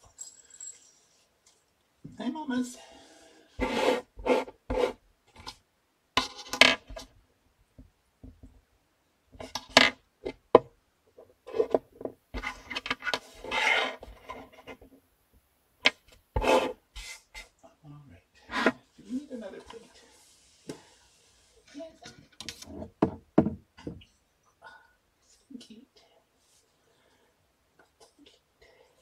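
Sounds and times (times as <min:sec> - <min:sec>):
scratchy rubbing and rustling: 0:03.6 - 0:05.5, 0:11.4 - 0:14.9, 0:15.9 - 0:17.6.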